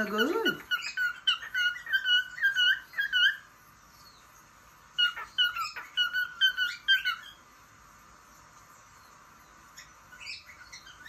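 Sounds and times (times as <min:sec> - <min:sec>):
cockatiel whistling chirps: 0:00.7 - 0:03.5, 0:05.0 - 0:07.4.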